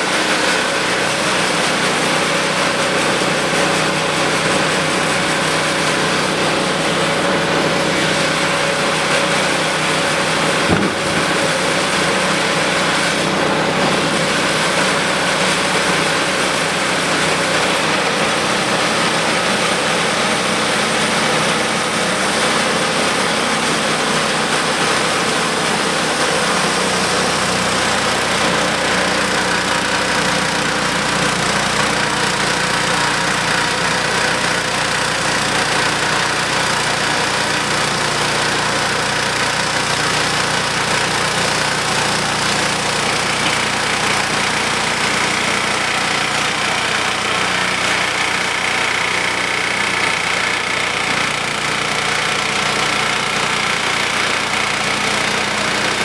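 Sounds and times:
band sawmill cutting log: 0.0 - 56.0
sharp knock: 10.6 - 12.3.

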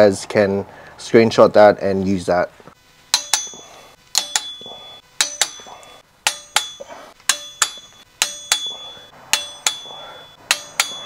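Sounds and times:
torque wrench clicking: 3.1 - 11.0.

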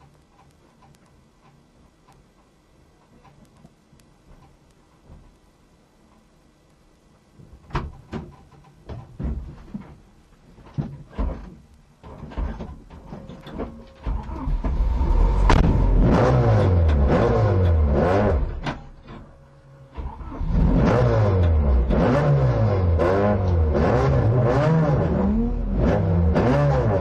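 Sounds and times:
knocks and thuds in car: 7.7 - 10.0, 10.6 - 14.8
car engine revving: 14.2 - 27.0.

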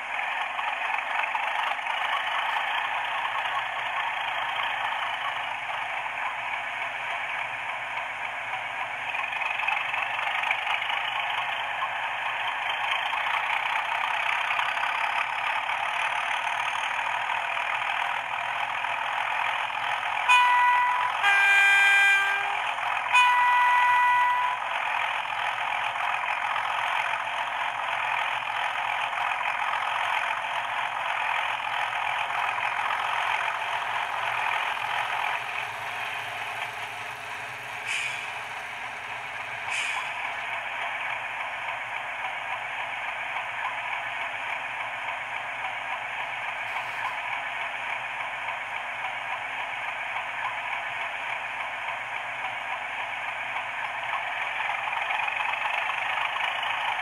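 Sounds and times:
diesel locomotive engine running: 0.0 - 57.0
two-tone train horn: 20.2 - 24.6.

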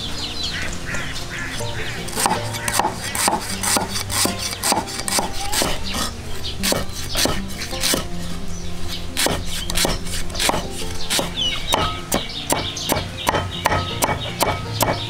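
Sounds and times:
background music: 0.0 - 15.0
birds chirping: 0.0 - 15.0
sharp knocks of food preparation: 2.1 - 5.8, 6.6 - 8.1, 9.2 - 15.0.

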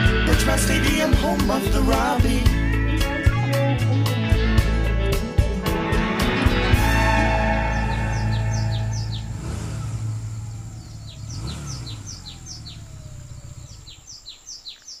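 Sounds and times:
music: 0.0 - 9.4
vehicles passing: 6.6 - 14.6
small birds chirping: 6.8 - 15.0.

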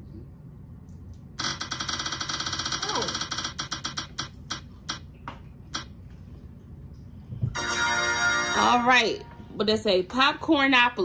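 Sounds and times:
spinning wheel app ticking: 1.4 - 5.0.

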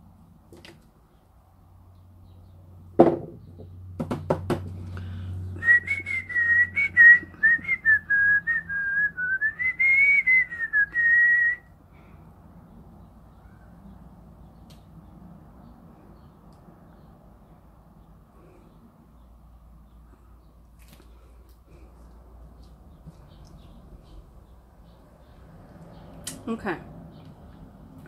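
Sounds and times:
person whistling a tune: 5.6 - 11.7.

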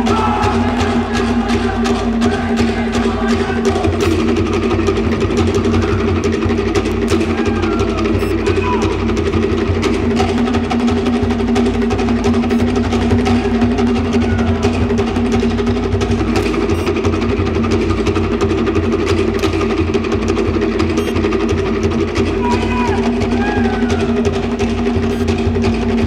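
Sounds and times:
drum ensemble playing fast rhythm: 0.0 - 26.0.

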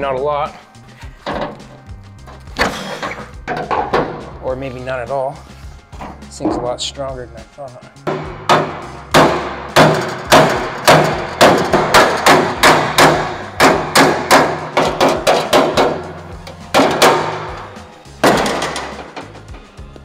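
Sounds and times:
hammer striking sheet steel: 8.1 - 19.4.

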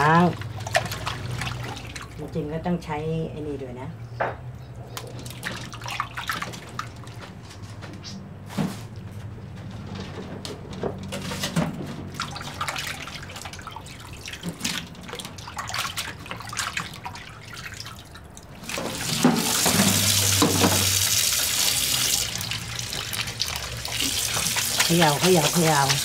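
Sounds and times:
tap water running: 0.0 - 2.4, 11.0 - 26.0
hands splashing in water: 12.1 - 26.0.

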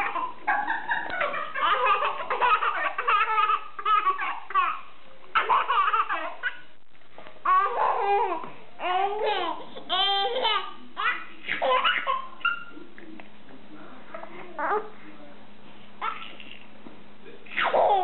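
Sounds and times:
baby laughing: 0.0 - 6.7, 7.4 - 12.8, 16.0 - 16.6, 17.5 - 18.0.

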